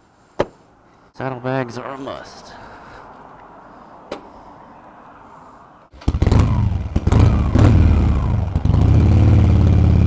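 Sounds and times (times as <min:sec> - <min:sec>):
motorcycle engine running: 0:06.0 - 0:10.0.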